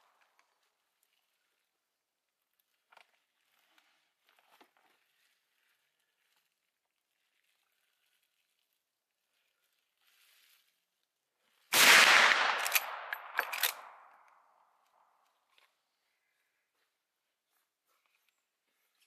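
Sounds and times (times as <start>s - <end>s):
rifle shot: 11.7s - 14.2s.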